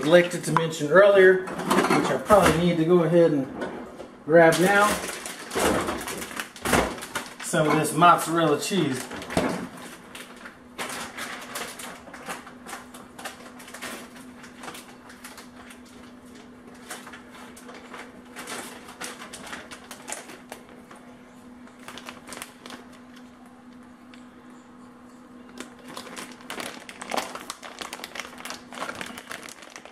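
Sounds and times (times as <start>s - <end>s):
steady low hum: 0.0s - 29.9s.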